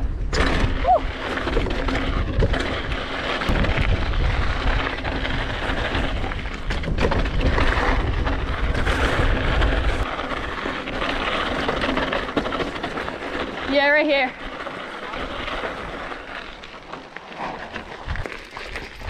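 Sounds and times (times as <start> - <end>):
wind buffeting microphone: 0.0 - 11.9
bike rattling over bumps: 0.0 - 19.0
bike tyres crunching on gravel: 0.4 - 19.0.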